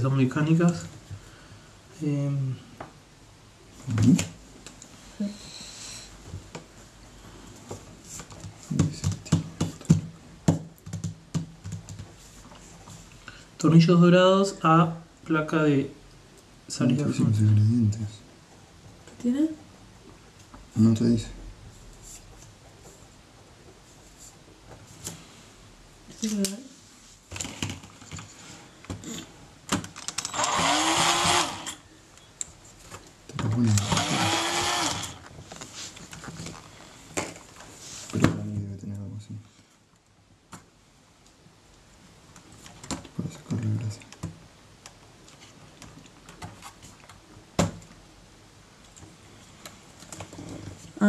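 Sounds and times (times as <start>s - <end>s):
cordless drill spinning: 30.2s - 31.8s, 33.7s - 35.2s.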